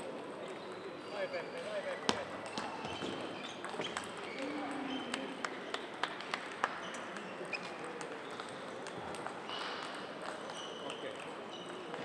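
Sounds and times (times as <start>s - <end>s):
sports hall background noise: 0.0s - 12.0s
table tennis balls clicking: 2.1s - 4.4s.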